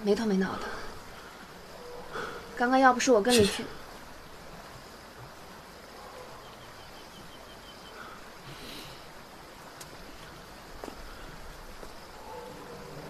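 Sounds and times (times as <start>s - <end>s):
steady background hiss: 0.0s - 13.0s
faint clicks: 9.8s - 11.1s.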